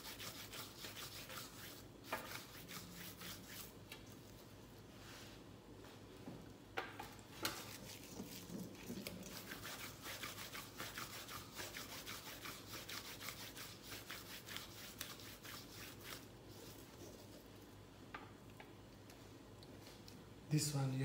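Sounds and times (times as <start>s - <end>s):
gloved hands rolling meat mixture: 7.1s - 17.6s.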